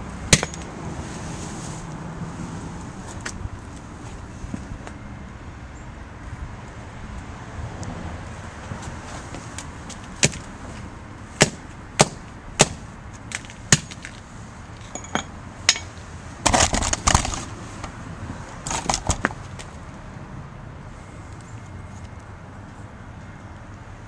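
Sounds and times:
phone smashed against paving stones: 0.3 - 0.7.

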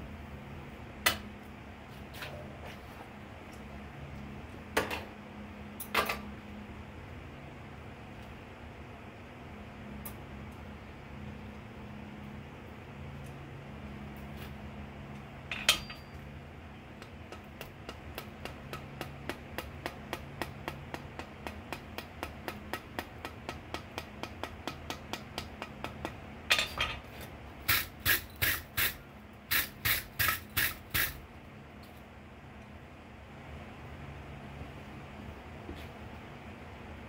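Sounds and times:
hammer striking steel on anvil: 15.5 - 16.2.

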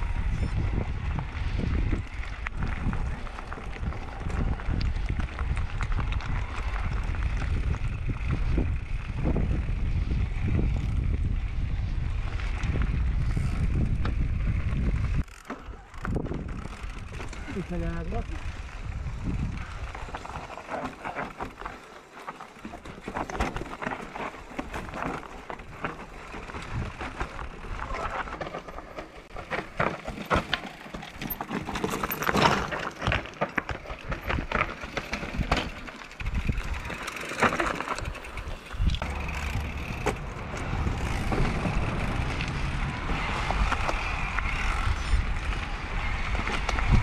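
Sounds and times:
wind rumbling on microphone: 0.0 - 21.7, 22.7 - 29.9, 31.2 - 47.0
bike rattling and knocking: 0.6 - 47.0
tyres crunching on dirt: 14.4 - 47.0.

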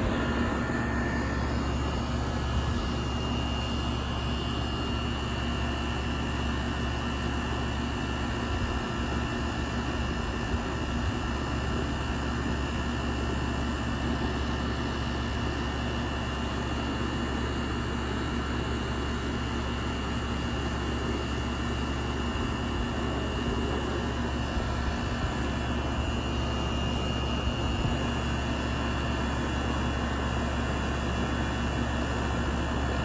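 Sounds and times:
low steady hum: 0.0 - 7.6
faint high whine: 0.0 - 9.2
condenser fan air rush: 0.0 - 33.0.

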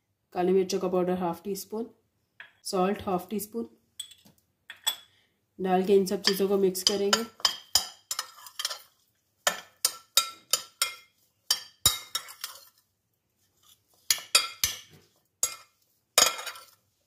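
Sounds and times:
metal spoon stirring in a bowl: 6.0 - 12.9, 13.6 - 16.8.

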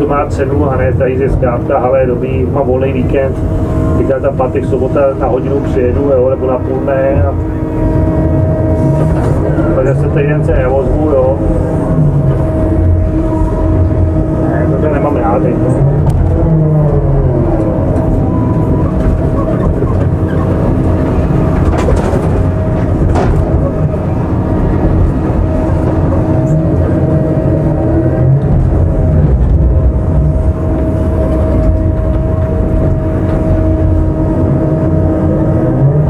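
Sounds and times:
diesel engine and hydraulics droning: 0.0 - 36.0.

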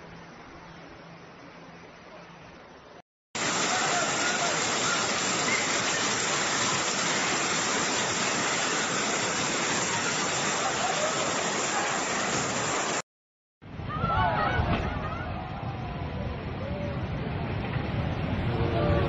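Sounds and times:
heavy rain pouring: 3.4 - 13.1.

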